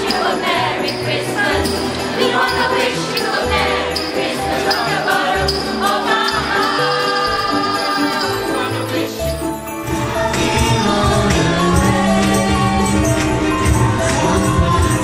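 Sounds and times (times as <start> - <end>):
group of voices singing: 0.0 - 15.0
jingle bells shaken: 0.0 - 15.0
bass line: 9.8 - 15.0.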